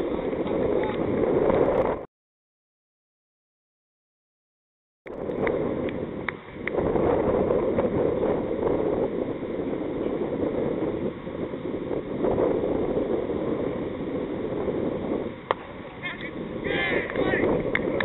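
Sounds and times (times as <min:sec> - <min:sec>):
wind buffeting microphone: 0:00.0 - 0:02.1, 0:05.1 - 0:18.0.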